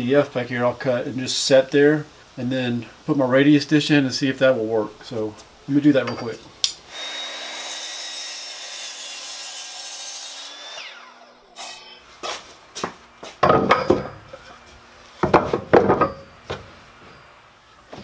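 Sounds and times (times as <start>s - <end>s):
miter saw cutting wood: 6.9s - 12.5s
wood blocks knocking on plywood: 13.4s - 14.2s, 15.2s - 16.2s.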